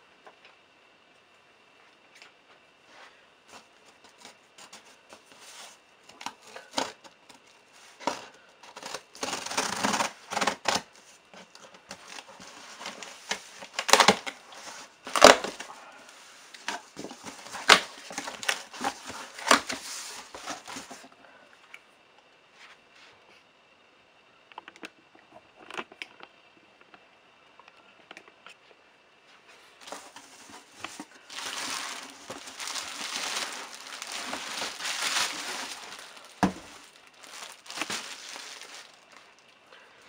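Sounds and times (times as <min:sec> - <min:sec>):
scissors slitting packing tape: 0:08.7 - 0:10.8
cardboard flaps crackling: 0:29.8 - 0:39.3.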